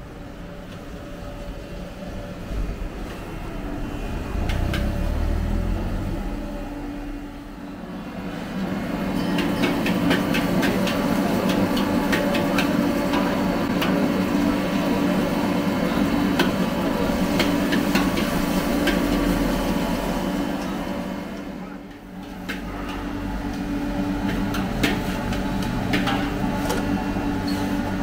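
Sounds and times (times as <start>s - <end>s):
steady low hum: 0.0s - 9.0s.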